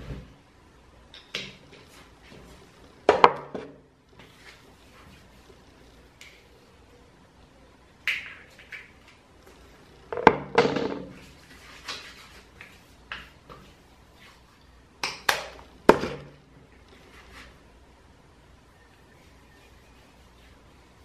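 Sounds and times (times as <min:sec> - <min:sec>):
hands rubbing together: 0:11.2 - 0:14.6, 0:19.2 - 0:21.0
hands patting skin: 0:11.4 - 0:14.4.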